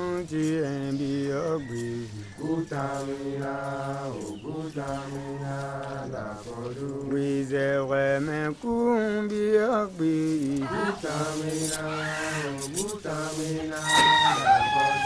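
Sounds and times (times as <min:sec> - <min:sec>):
person chanting long notes: 0:13.8 - 0:15.0.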